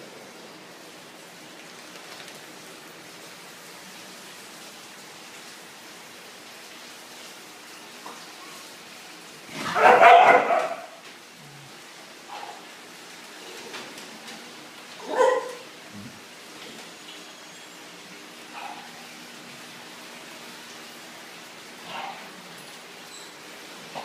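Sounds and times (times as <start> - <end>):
small dog barking: 9.7 - 11.0, 15.0 - 15.7.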